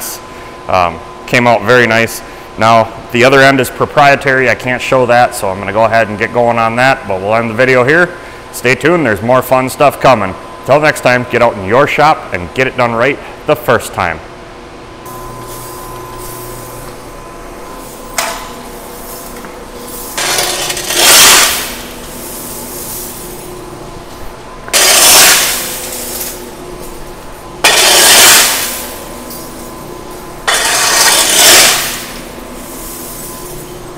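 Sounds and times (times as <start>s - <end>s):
steady shop hum: 0.0s - 33.9s
metal chips scraped across concrete: 20.2s - 23.1s, 24.7s - 26.4s, 27.7s - 28.9s, 30.5s - 32.2s.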